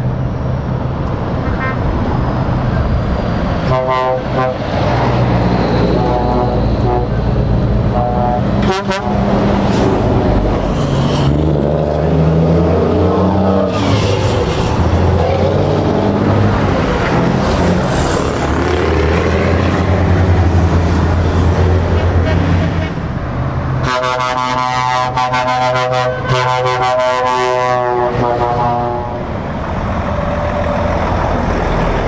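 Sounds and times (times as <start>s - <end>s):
trucks passing with engines droning: 0.0s - 32.0s
air horn blasts: 3.6s - 4.7s, 5.9s - 9.3s, 23.8s - 29.3s.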